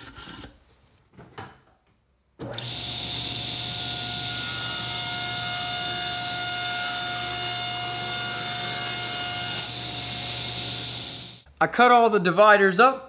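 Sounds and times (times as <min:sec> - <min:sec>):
table saw blade whine: 0:02.4 - 0:11.4
saw cutting plywood: 0:02.6 - 0:11.4.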